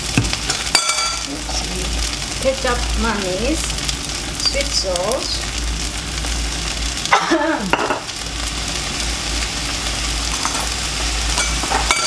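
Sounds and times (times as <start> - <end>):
extractor fan humming: 0.0 - 12.0
rice sizzling in a wok: 0.0 - 12.0.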